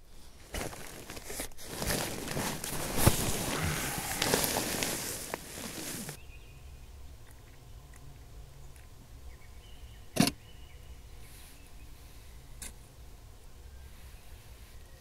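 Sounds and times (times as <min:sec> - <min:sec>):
tent fabric crinkling: 0:00.3 - 0:06.2.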